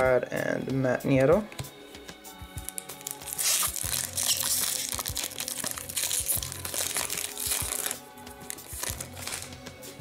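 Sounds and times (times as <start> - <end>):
foil wrapper crinkling and tearing: 2.6 - 9.6.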